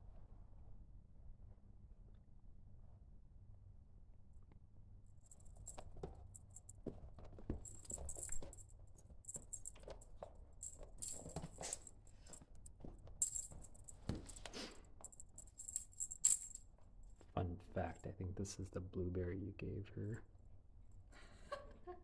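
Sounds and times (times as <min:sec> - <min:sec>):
jingle bell shaken: 0:07.5 - 0:16.6.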